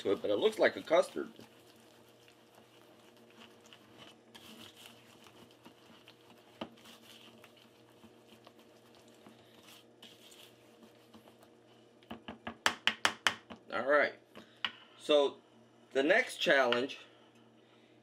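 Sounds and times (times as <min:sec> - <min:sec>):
wire whisk scraping bowl: 0:00.0 - 0:11.5.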